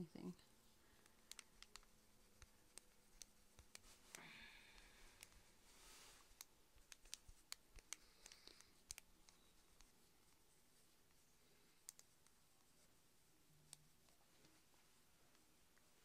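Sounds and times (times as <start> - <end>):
soft rubbing on skin: 0.2 - 16.0
faint clicks: 1.0 - 5.4, 6.2 - 9.9, 11.7 - 12.4.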